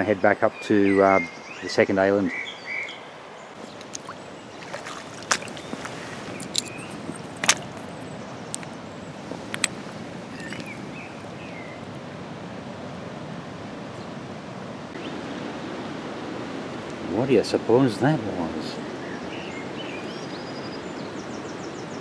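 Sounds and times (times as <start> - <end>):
river water running over stones: 3.5 - 12.1
stones knocking together: 3.6 - 8.7, 9.3 - 10.9.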